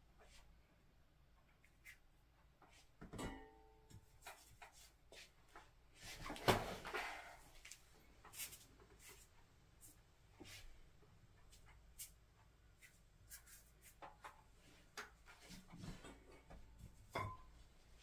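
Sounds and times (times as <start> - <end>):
brush rubbing: 12.8 - 14.0.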